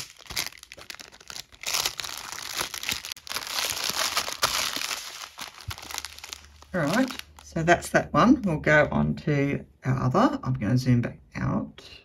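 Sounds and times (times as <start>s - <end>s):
plastic bags crinkling: 0.0s - 7.8s.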